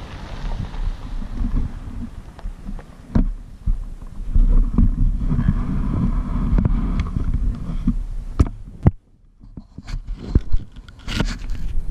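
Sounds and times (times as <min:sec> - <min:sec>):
dirt bike engine rumble: 0:00.0 - 0:11.9
wind rushing over microphone: 0:00.0 - 0:11.9.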